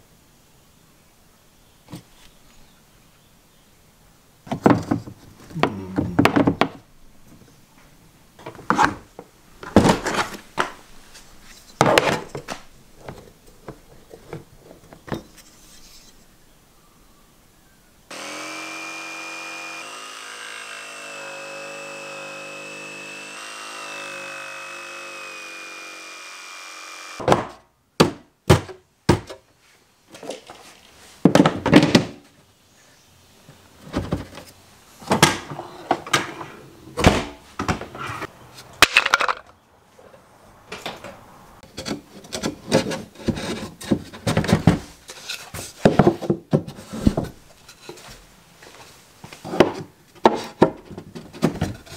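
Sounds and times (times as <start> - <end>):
jigsaw cutting plywood: 18.1 - 27.2
plywood pieces knocking: 38.8 - 39.5.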